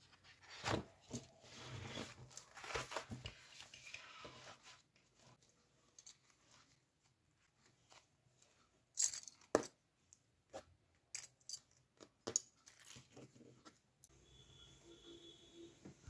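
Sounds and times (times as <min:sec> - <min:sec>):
paper rustling: 0:00.0 - 0:05.5.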